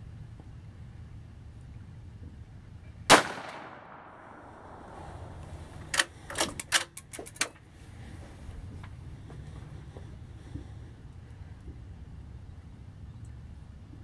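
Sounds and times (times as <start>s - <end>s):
rifle shot echo: 3.1s - 5.6s.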